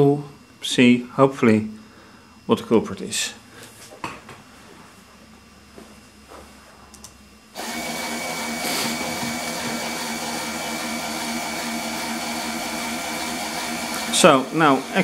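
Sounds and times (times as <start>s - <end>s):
small air compressor humming: 7.5s - 15.0s.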